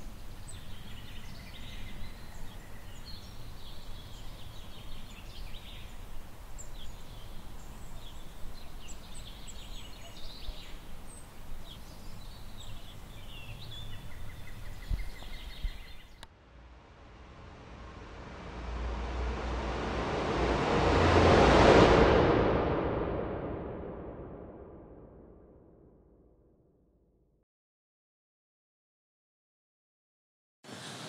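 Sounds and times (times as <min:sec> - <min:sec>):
small birds chirping: 0:00.0 - 0:16.3
low background rumble: 0:13.2 - 0:25.5.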